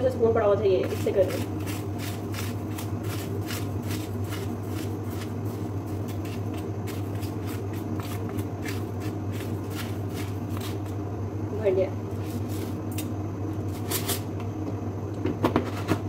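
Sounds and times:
steady low hum: 0.0 - 16.0
spoon scraping sugar: 0.8 - 11.0, 12.1 - 12.8, 13.7 - 14.3.

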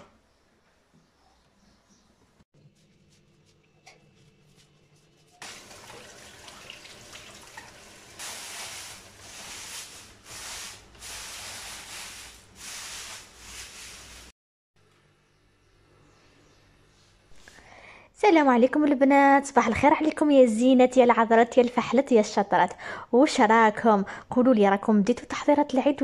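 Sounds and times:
tap water splashing into sink: 5.4 - 8.2.

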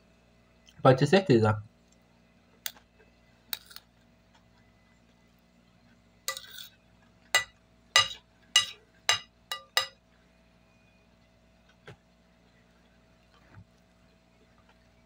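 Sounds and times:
spoon scraping a ceramic plate: 3.5 - 3.8, 6.3 - 6.7, 7.4 - 10.0
spoon clinking on a plate: 3.6 - 3.8, 6.3 - 6.7, 7.4 - 10.0.

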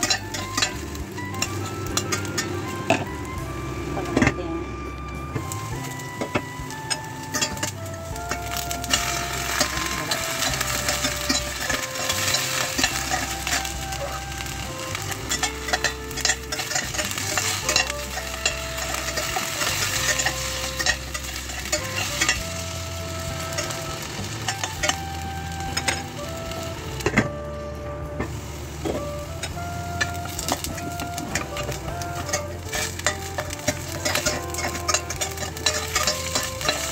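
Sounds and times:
potatoes sizzling in oil: 0.0 - 4.1, 5.3 - 27.4, 28.1 - 36.9
utensil scraping a pot: 5.4 - 25.2, 28.8 - 36.9.

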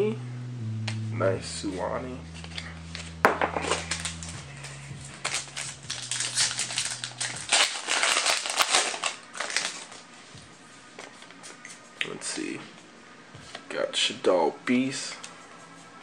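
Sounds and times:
trading cards clicking and rustling: 5.2 - 9.9.

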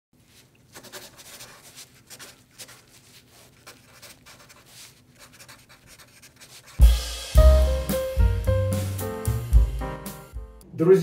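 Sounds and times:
pen scratching on paper: 0.7 - 6.8.

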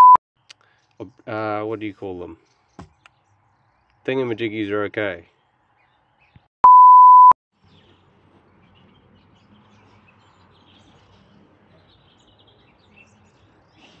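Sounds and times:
loud steady bleep tone: 0.0 - 0.2, 6.6 - 7.4.

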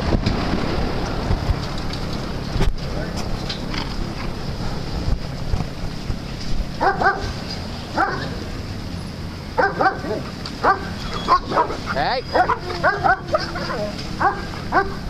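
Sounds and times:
steady low rumble: 0.0 - 15.0
dogs barking: 6.8 - 8.5, 9.6 - 15.0.

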